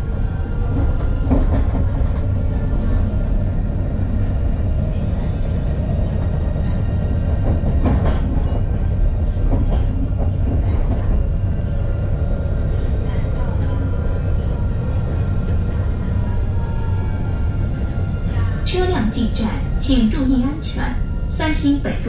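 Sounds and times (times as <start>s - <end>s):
tram rumbling along track: 0.0s - 22.0s
wheels clacking on rails: 0.6s - 2.6s, 6.0s - 12.1s.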